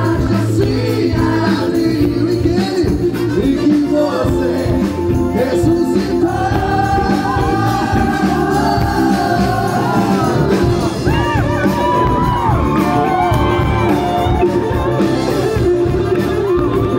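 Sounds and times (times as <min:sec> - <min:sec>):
man singing: 0:00.0 - 0:11.3
bass: 0:00.0 - 0:16.9
drums: 0:00.0 - 0:16.9.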